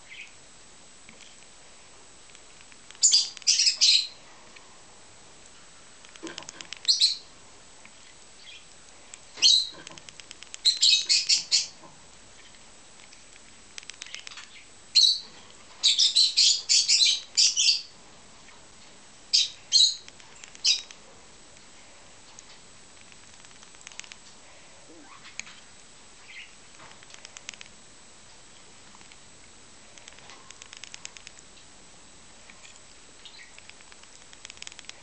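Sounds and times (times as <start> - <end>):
bird chick begging chirps: 3.0 - 4.2, 6.8 - 7.3, 9.4 - 9.8, 10.6 - 11.8, 14.0 - 17.9.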